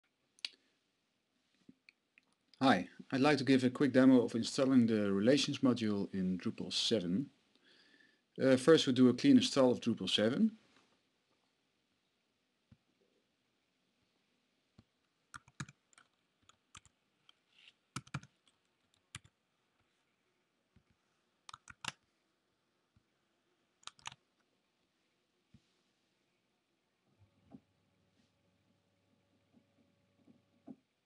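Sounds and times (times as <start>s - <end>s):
faint computer keyboard typing: 15.3s - 19.4s, 20.8s - 22.0s, 23.8s - 24.4s.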